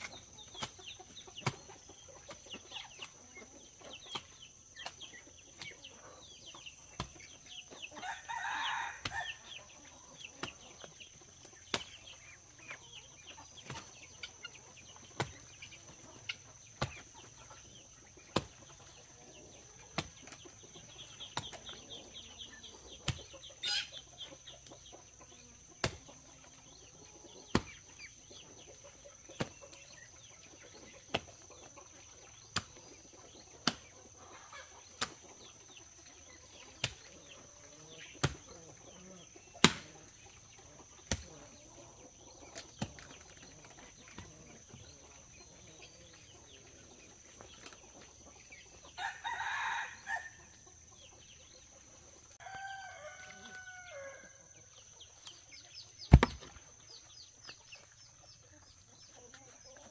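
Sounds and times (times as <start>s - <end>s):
chickens clucking: 0.0s - 59.9s
rooster crowing: 8.0s - 9.4s, 49.0s - 50.4s, 52.4s - 54.4s.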